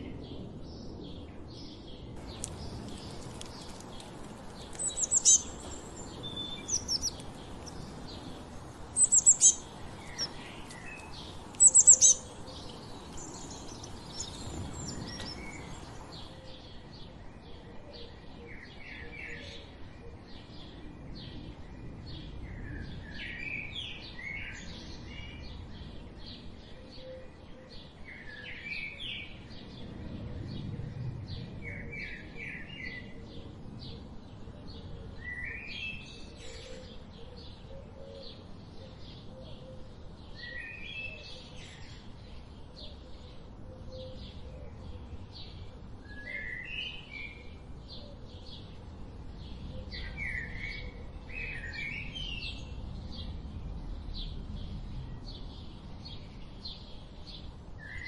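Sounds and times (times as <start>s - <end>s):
small birds chirping: 0.0s - 19.8s
falling bird twittering: 2.2s - 16.0s
high-pitched bird calls: 4.7s - 8.0s, 9.0s - 15.8s.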